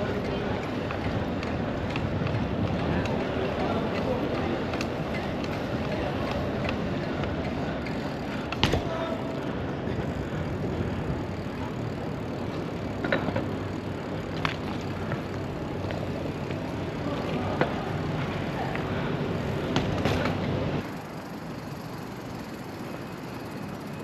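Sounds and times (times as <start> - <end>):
tyre and wind noise: 0.0 - 21.1
bike knocking over bumps: 7.9 - 9.2, 19.6 - 20.5.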